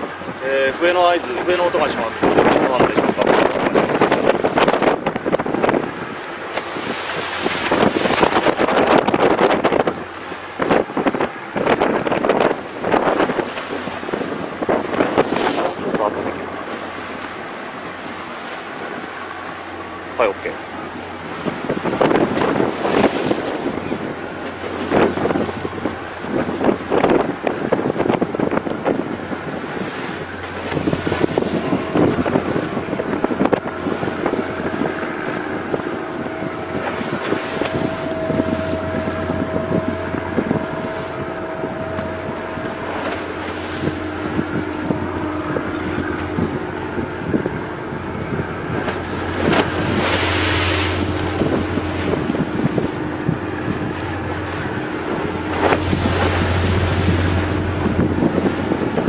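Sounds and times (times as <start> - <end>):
sea noise: 0.0 - 59.0
wind buffeting microphone: 0.0 - 59.0
low steady hum: 28.3 - 59.0.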